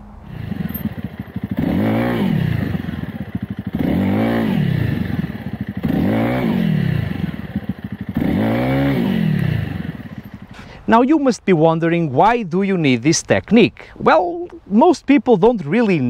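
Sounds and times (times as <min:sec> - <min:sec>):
rear wheel spinning on dirt: 0:00.3 - 0:10.6
dirt bike engine revving: 0:00.3 - 0:10.8.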